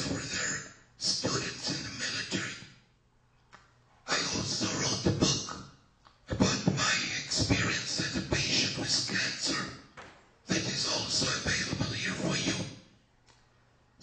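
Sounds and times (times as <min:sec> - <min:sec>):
man talking into microphone: 0:00.0 - 0:02.6, 0:04.1 - 0:05.6, 0:06.3 - 0:09.8, 0:10.5 - 0:12.8.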